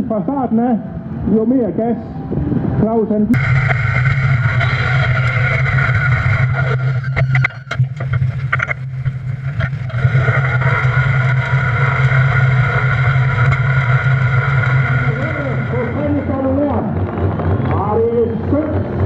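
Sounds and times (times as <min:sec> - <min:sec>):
tractor engine running under load: 0:03.4 - 0:19.0.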